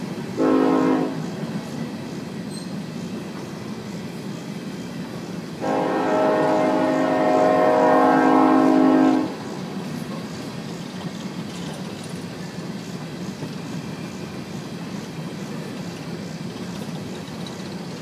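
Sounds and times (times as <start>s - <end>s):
train cars rolling on track: 0.0s - 18.0s
train horn chord: 0.4s - 1.2s, 5.6s - 9.4s.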